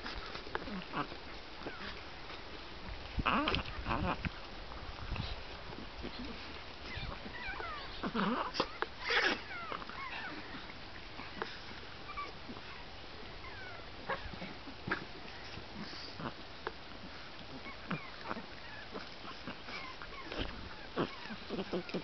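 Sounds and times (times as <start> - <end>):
puppies whimpering and squeaking: 6.8 - 14.5, 17.5 - 22.0.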